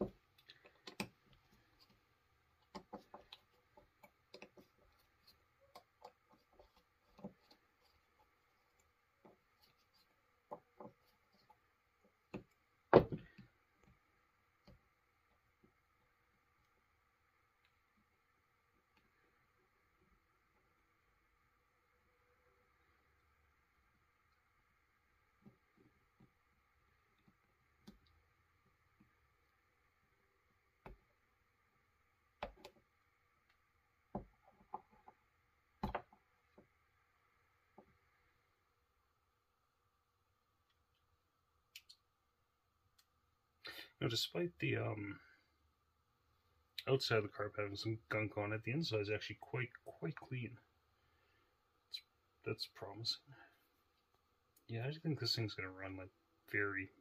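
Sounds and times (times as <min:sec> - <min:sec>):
small parts clicking and tapping: 0:00.0 - 0:12.6
faint steady hum: 0:00.0 - 0:57.0.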